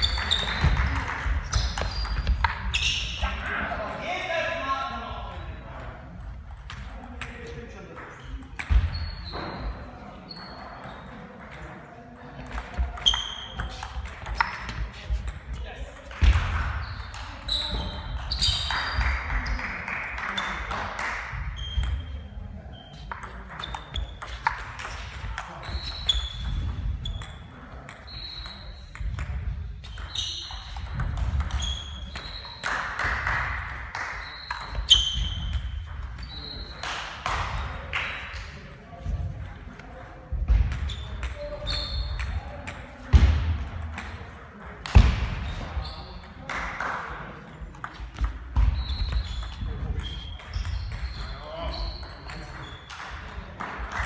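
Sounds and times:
table tennis balls clicking: 0.0 - 2.8, 5.3 - 8.8, 10.4 - 17.4, 23.0 - 38.7, 46.2 - 54.0
background talk: 0.0 - 54.0.

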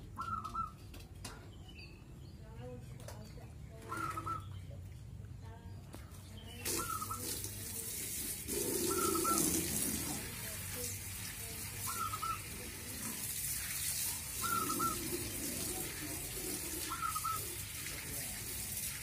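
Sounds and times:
dove cooing: 0.2 - 0.8, 3.8 - 4.5, 8.5 - 10.3, 11.8 - 13.3, 14.2 - 17.8.

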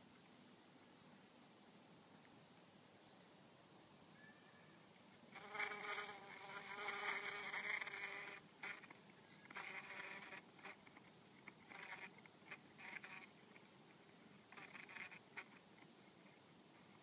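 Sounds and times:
bumblebee buzzing: 5.3 - 8.9, 9.5 - 10.8, 11.7 - 12.1, 12.8 - 13.3, 14.5 - 15.5.

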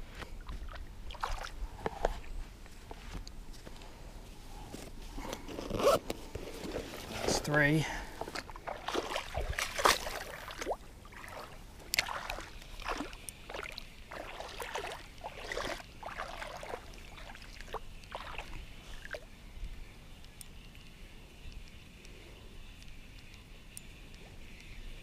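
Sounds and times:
water splashing around wading legs: 0.4 - 1.6, 8.2 - 19.3.

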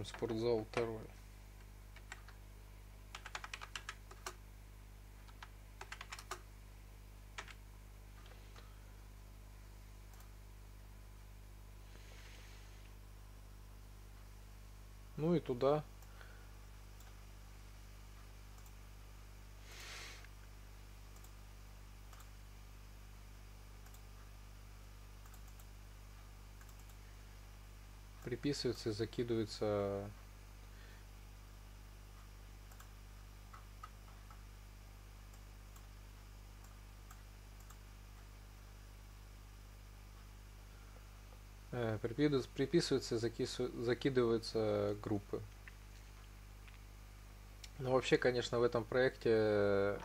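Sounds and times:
steady low hum: 0.0 - 50.0
typing on computer keyboard: 2.0 - 2.4, 3.1 - 4.4, 5.2 - 6.4, 7.4 - 7.6
computer mouse clicks: 18.5 - 18.8, 21.1 - 21.4, 22.1 - 22.3, 23.8 - 24.1, 25.2 - 25.7, 26.6 - 27.0, 32.6 - 34.4, 36.6 - 37.8
short soft hiss: 19.6 - 20.4.

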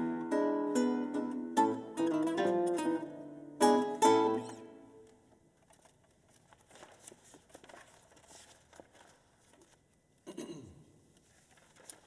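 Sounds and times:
faint rustles and clicks: 5.1 - 10.3, 11.0 - 12.0.

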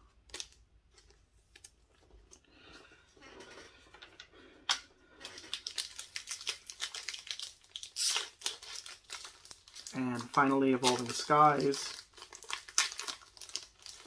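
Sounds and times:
foil wrapper crinkling: 5.2 - 14.0.

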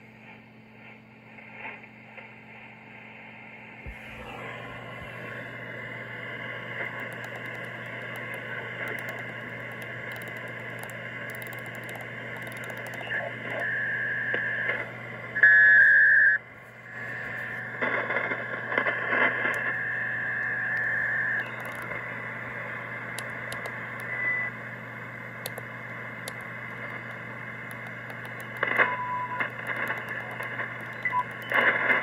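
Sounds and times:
low steady hum: 0.0 - 32.0
radio band noise: 0.0 - 32.0
radio carrier whistles: 12.9 - 14.8, 15.4 - 16.4, 17.0 - 22.4, 24.0 - 24.6, 28.7 - 32.0.

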